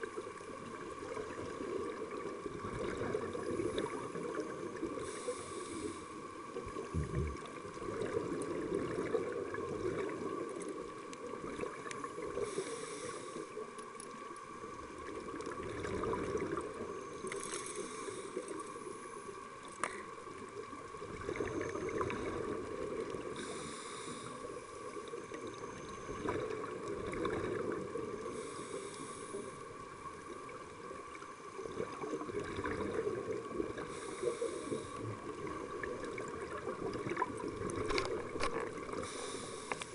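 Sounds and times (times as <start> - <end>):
faint steady hum: 0.0 - 39.9
underwater rush of water: 0.0 - 39.9
scuba regulator breath hissing: 5.0 - 6.2, 12.4 - 13.5, 17.4 - 18.6, 23.3 - 24.5, 33.9 - 35.0, 38.9 - 39.9.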